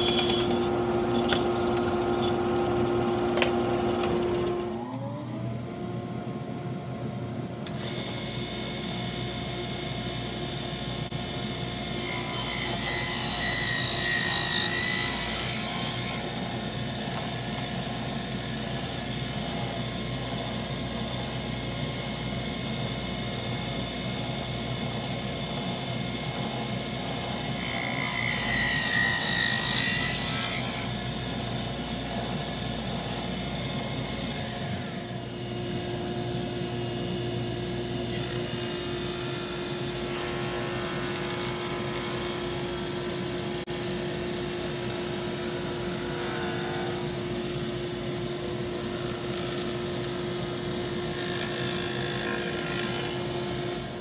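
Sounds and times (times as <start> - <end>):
saw blade cutting wood: 0.0 - 5.0, 11.8 - 19.6
table saw whining: 0.0 - 5.5, 7.6 - 54.0.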